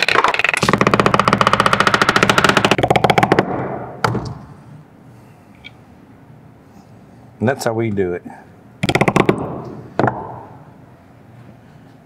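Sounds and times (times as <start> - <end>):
impact tool hammering: 0.6 - 4.3.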